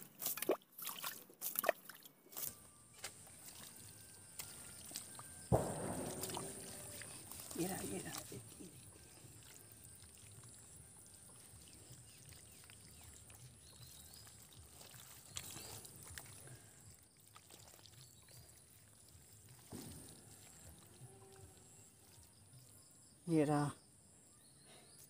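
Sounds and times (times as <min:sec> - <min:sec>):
hands squelching in wet mud: 0:00.0 - 0:22.8
wet knocks: 0:04.4 - 0:09.0.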